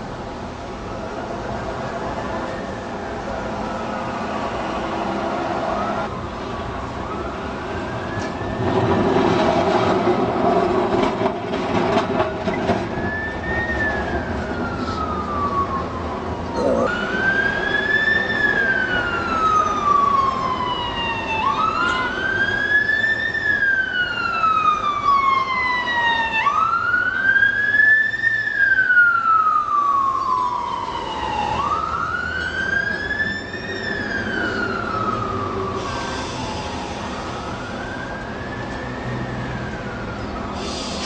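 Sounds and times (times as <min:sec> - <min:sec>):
siren wailing: 0:12.9 - 0:41.0.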